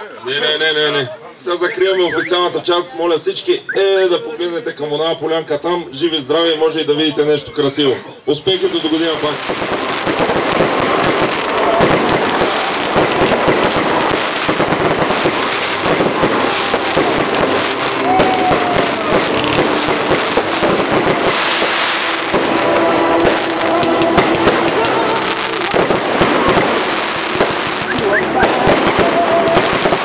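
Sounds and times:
fireworks bangs and crackling: 8.4 - 30.0.

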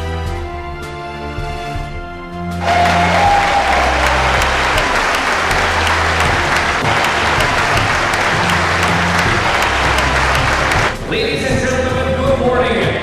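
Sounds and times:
audience applauding: 2.6 - 10.9
music bass line over speakers: 2.8 - 13.0.

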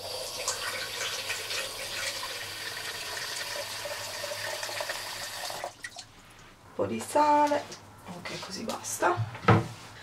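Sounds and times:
tap water filling a plastic jug: 0.0 - 6.1.

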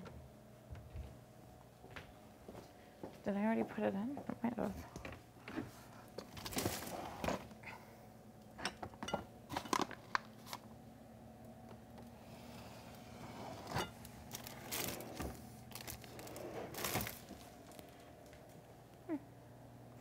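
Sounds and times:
kitchen items clicking and rustling: 13.7 - 17.8.

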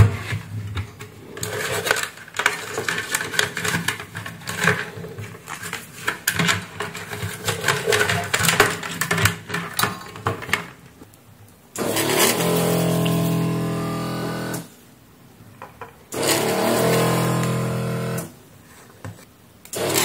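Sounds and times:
plastic parts knocking and clicking: 0.0 - 11.1, 15.6 - 16.3
desoldering pump humming: 11.8 - 14.7, 16.1 - 18.4.

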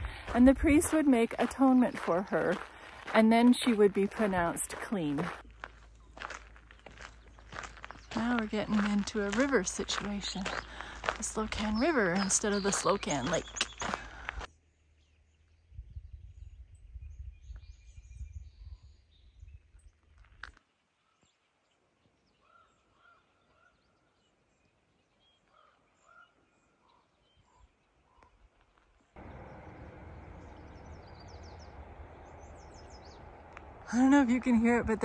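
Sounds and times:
wind rumble on microphone: 15.6 - 20.4.

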